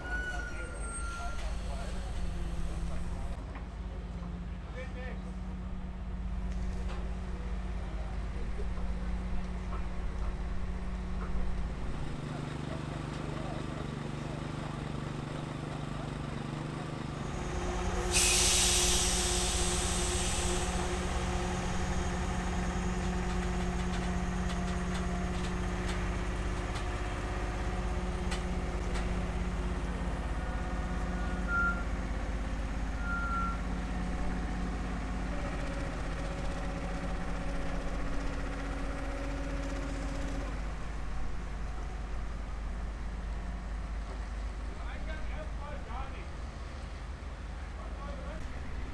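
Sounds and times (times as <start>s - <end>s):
truck diesel engine running: 7.3s - 45.8s
air release hiss: 17.8s - 21.0s.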